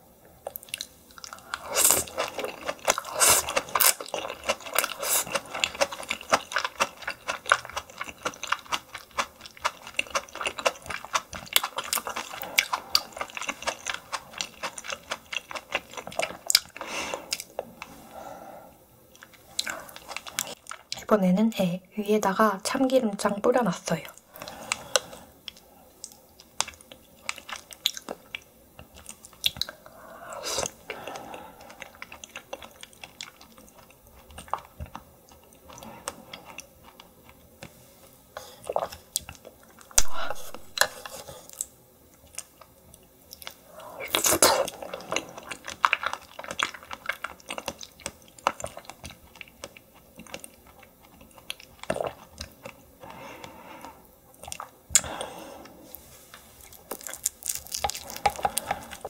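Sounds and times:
close chewing with wet mouth clicks: 0:00.4 - 0:17.5, 0:24.4 - 0:29.8, 0:30.6 - 0:37.4, 0:41.5 - 0:52.8, 0:54.3 - 0:55.1.

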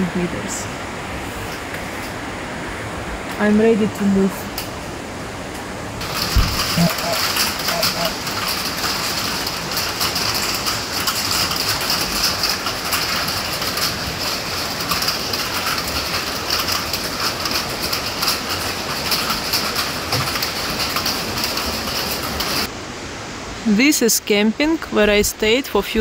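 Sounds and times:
heavy rain pattering: 0:03.2 - 0:22.7.

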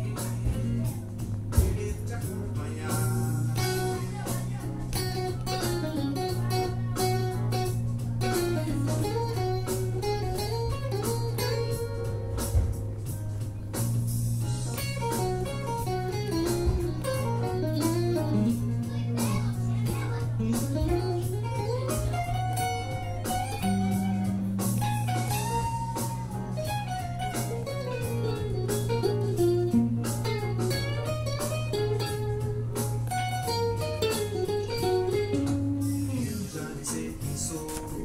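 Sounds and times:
bass line: 0:00.0 - 0:38.0
drums: 0:00.0 - 0:38.0
electric guitar lead solo: 0:14.7 - 0:36.4.

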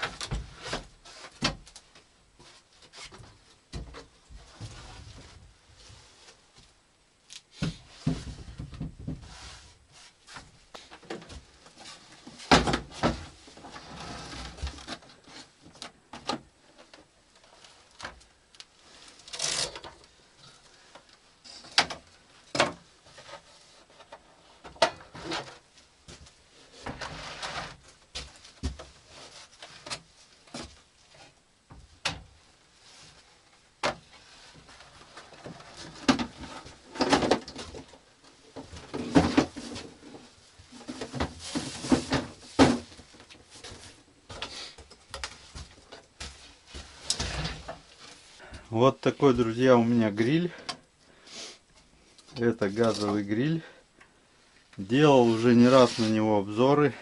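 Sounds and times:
knocks and clunks: 0:07.6 - 0:09.3.

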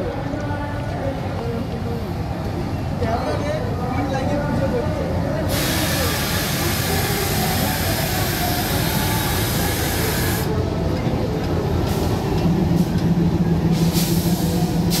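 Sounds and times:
diesel locomotive engine drone: 0:00.0 - 0:15.0
loud steady hiss: 0:05.5 - 0:10.5.

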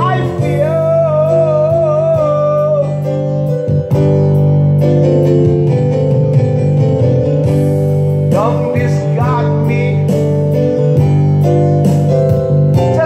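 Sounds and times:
person singing: 0:00.0 - 0:03.4, 0:08.3 - 0:10.4, 0:12.8 - 0:13.0.

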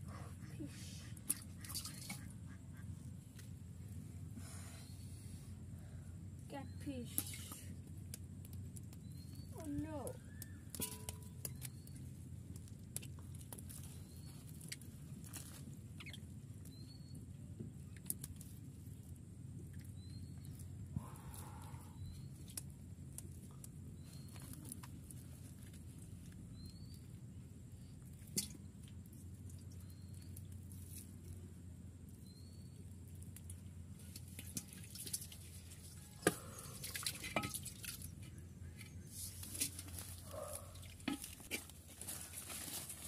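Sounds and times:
steady low hum: 0:00.0 - 0:43.0
fish tapping on wet mud: 0:28.2 - 0:28.6.

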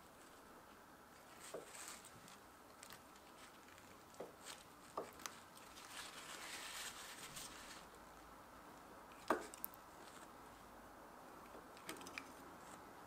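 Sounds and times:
paper towel rustling: 0:01.2 - 0:08.0.

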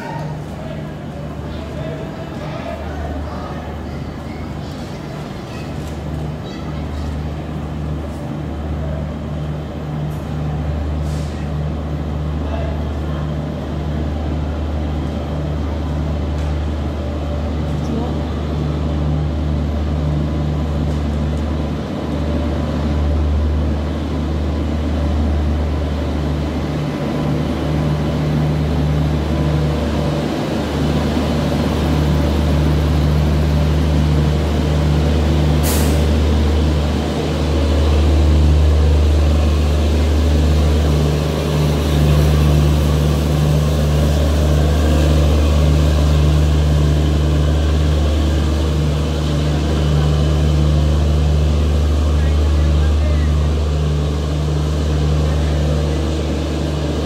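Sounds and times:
electric locomotive humming: 0:00.0 - 0:57.0
brief hiss: 0:35.6 - 0:36.0.

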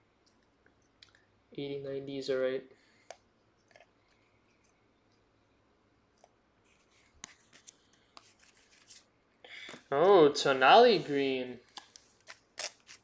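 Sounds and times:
trading cards rustling and clicking: 0:06.2 - 0:09.1.

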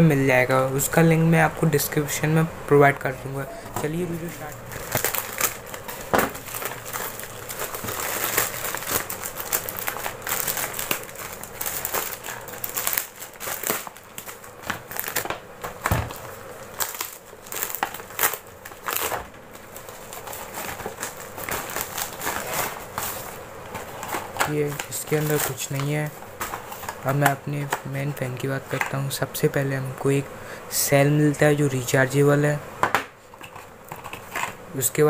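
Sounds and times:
plastic bag crinkling: 0:03.8 - 0:27.3.

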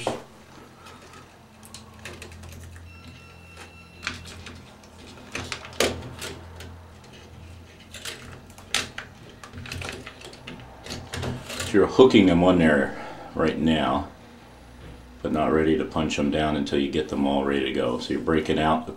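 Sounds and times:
wire clicks and scrapes: 0:00.0 - 0:12.2
steady low hum: 0:00.0 - 0:18.9.

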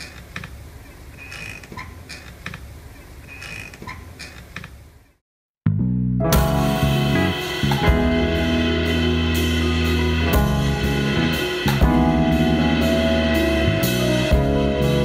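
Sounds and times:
held bass notes: 0:05.6 - 0:15.0
keyboards: 0:06.2 - 0:15.0
band playing instrumental: 0:06.3 - 0:15.0.

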